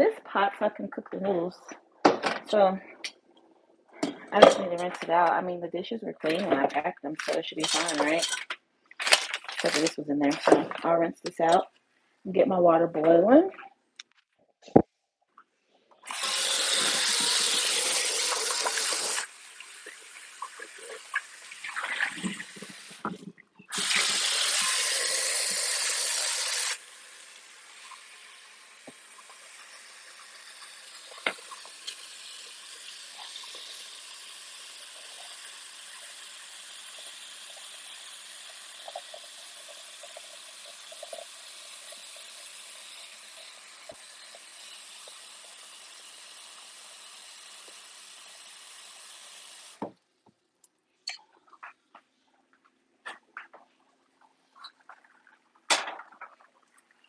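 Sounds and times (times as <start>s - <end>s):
faucet running water: 4.3s - 8.4s, 9.0s - 11.6s, 16.0s - 50.0s
pot clattering: 7.2s - 10.8s.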